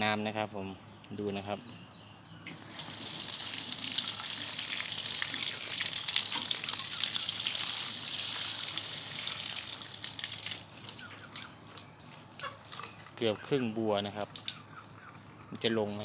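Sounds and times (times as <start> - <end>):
water pouring onto soil and leaves: 2.5 - 12.8.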